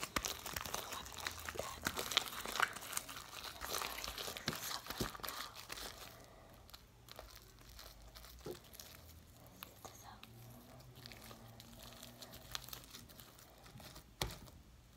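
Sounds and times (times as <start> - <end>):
slime clicking and crackling: 0.0 - 14.6.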